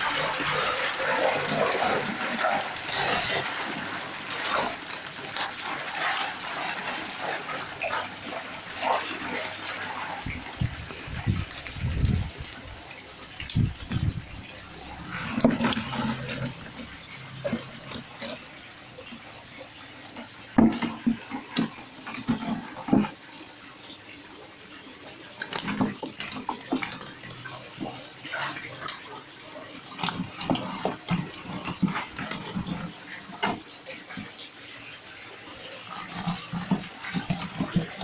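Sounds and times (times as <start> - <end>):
fish thrashing in a net: 0.0 - 19.9, 25.3 - 34.2
water splashing and dripping: 0.0 - 38.0.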